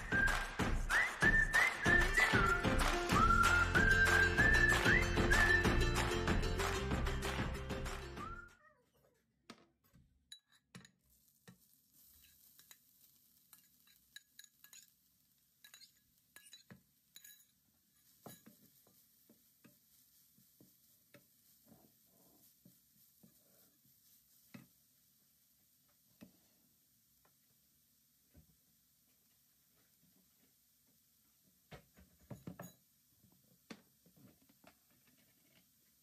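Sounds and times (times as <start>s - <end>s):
carrot sizzling in butter: 10.9s - 31.7s
spatula tapping frying pan: 12.3s - 15.0s, 15.6s - 19.8s.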